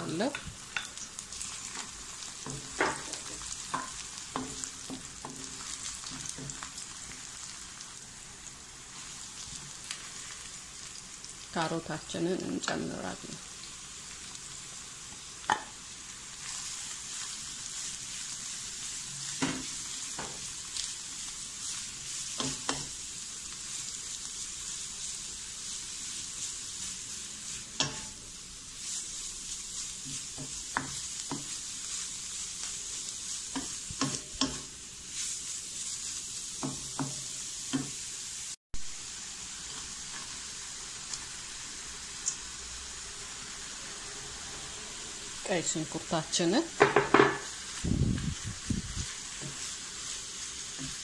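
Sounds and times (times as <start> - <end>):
vegetables sizzling in a wok: 0.0 - 51.0
wooden spatula knocking on pan: 36.6 - 37.9, 46.8 - 47.5.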